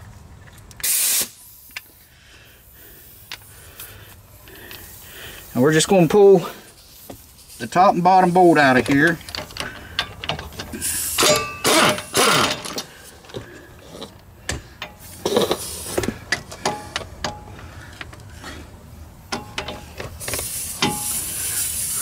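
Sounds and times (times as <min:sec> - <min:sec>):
pneumatic impact wrench: 0:00.8 - 0:01.8, 0:09.2 - 0:13.1, 0:14.5 - 0:17.4, 0:19.3 - 0:22.0
steady hiss: 0:00.8 - 0:11.6, 0:14.9 - 0:22.0
metal clicks and clanks: 0:08.7 - 0:18.3, 0:19.3 - 0:21.2.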